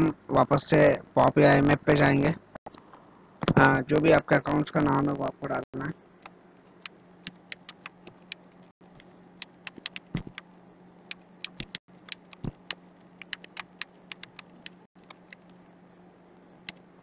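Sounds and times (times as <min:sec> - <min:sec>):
faint low hum: 0:00.0 - 0:17.0
keyboard keystroke clicks: 0:11.4 - 0:15.4.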